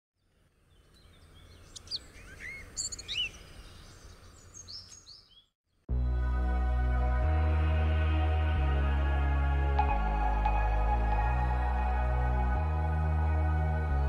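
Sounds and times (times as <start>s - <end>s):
birds chirping: 0.2s - 5.6s
ambient music with deep bass: 5.9s - 14.0s.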